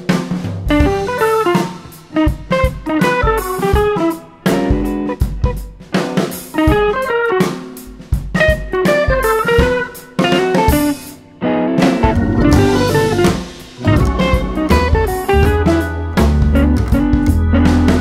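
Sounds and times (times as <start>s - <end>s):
drum kit playing: 0.0s - 18.0s
plucked guitar melody: 8.8s - 17.9s.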